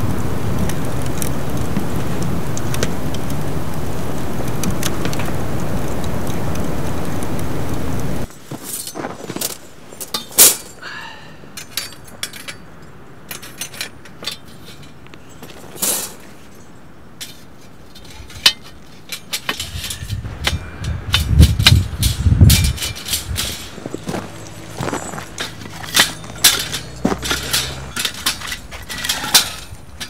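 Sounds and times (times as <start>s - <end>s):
metal tool clinking on fire pit: 8.2s - 10.8s, 11.5s - 30.0s.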